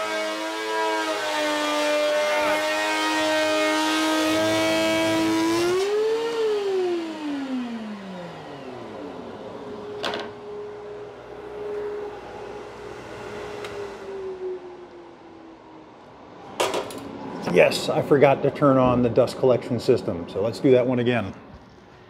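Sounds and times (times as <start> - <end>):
thickness planer whining: 0.0 - 17.5
motor coasting to a stop: 5.5 - 15.6.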